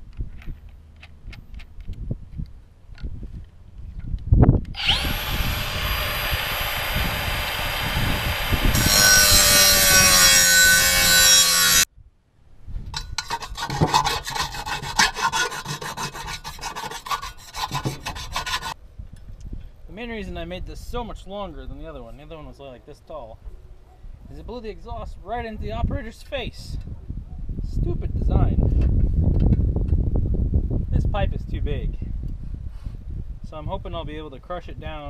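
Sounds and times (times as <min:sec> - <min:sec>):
angle grinder cutting metal: 0:04.8 - 0:11.9, 0:13.2 - 0:18.8
metal scraping on metal: 0:08.7 - 0:11.9, 0:12.9 - 0:18.8.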